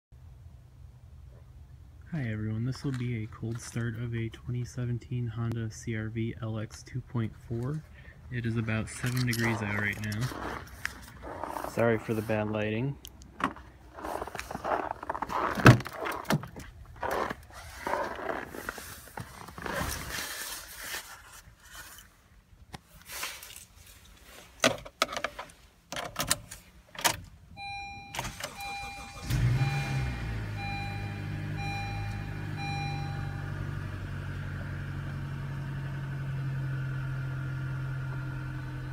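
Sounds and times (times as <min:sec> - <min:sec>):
car engine starting and idling: 0:00.2 - 0:19.7, 0:25.9 - 0:38.9
dashboard chime beeping: 0:27.6 - 0:33.8.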